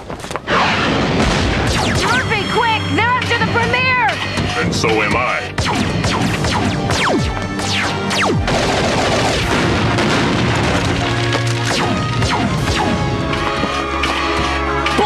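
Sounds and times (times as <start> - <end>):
rumbling explosion: 0.0 - 2.1, 8.4 - 13.6
action music with held notes: 0.5 - 15.0
cartoon laser gun zaps: 5.6 - 8.5.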